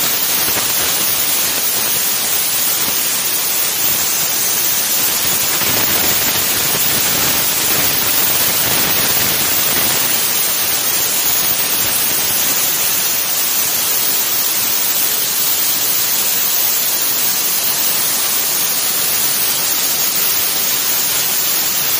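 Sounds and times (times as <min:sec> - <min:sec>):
plasma torch hissing: 0:00.0 - 0:13.3.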